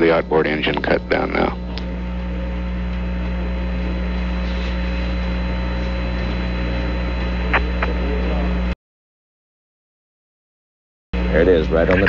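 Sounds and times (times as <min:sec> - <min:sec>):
radio channel hiss and hum: 0:00.0 - 0:08.8, 0:11.2 - 0:12.0.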